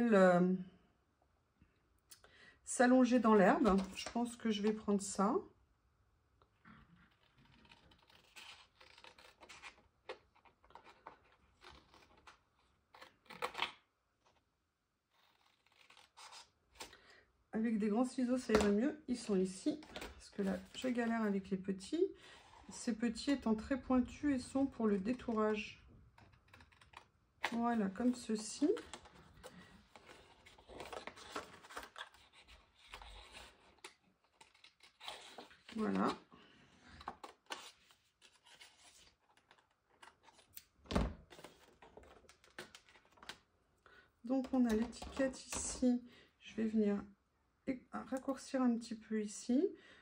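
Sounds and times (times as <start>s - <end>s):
paper rustling: 26.2s - 36.2s.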